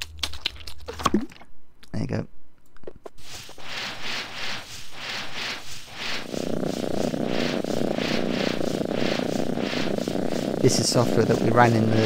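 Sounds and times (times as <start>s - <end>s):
cat purring: 3.2s - 12.0s
breathy pulses: 3.4s - 12.0s.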